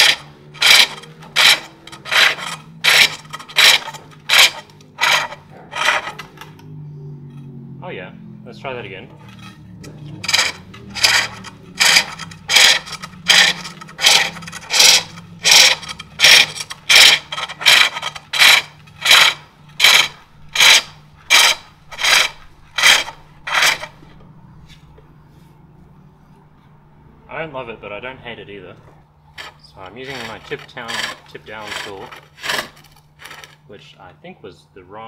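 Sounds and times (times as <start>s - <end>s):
lathe tool rasping on wood: 0.0s - 6.3s, 10.2s - 24.0s, 29.4s - 33.6s.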